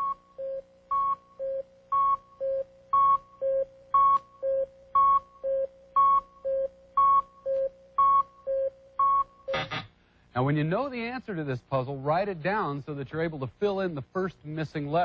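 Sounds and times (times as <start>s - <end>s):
electronic countdown beeps: 0.0s - 9.8s.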